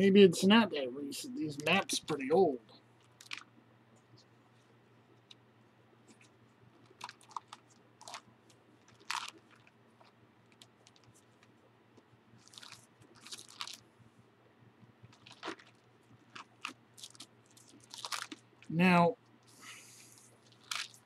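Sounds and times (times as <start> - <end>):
thin pages crackling and rustling: 3.0 - 3.5, 6.1 - 11.5, 12.4 - 13.8, 15.1 - 18.4, 20.4 - 21.0.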